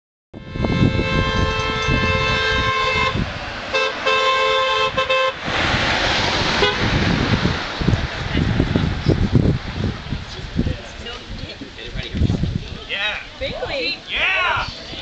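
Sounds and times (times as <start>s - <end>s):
two-tone car horn honking: 0.4s - 5.4s, 6.6s - 6.9s
vehicle passing rush: 0.4s - 15.0s.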